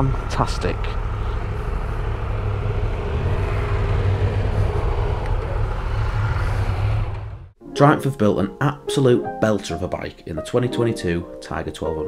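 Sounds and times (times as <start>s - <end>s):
motorcycle engine running: 0.0s - 7.6s
wind noise: 0.3s - 7.6s.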